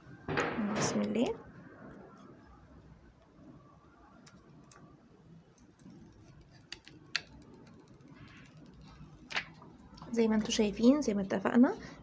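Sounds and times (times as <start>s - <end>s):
plastic film peeling: 4.2s - 9.7s.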